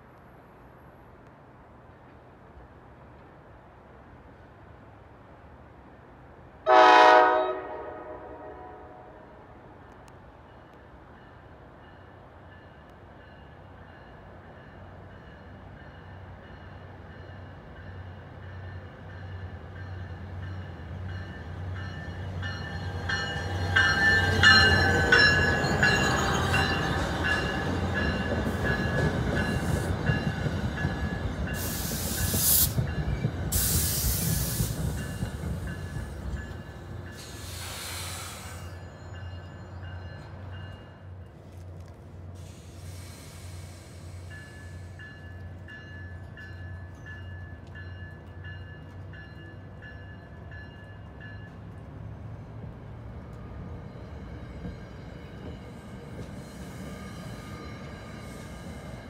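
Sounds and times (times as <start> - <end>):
diesel locomotive engine: 0.1 - 59.0
air hissing: 31.6 - 32.8, 33.5 - 35.2, 37.2 - 38.8, 42.4 - 45.0
train wheels or brakes squealing: 37.1 - 40.3, 42.4 - 45.3, 54.0 - 59.0.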